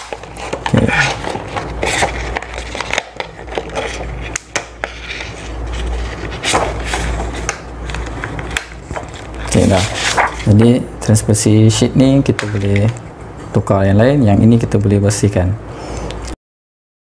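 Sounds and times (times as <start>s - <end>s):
plastic sheet crinkling: 0.0s - 10.6s.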